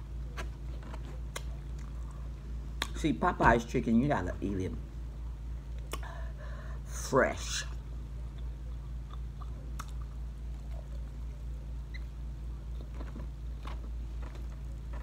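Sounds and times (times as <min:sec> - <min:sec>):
steady low hum: 0:00.0 - 0:15.0
crunching while chewing: 0:00.2 - 0:03.0, 0:08.2 - 0:11.6, 0:12.4 - 0:15.0.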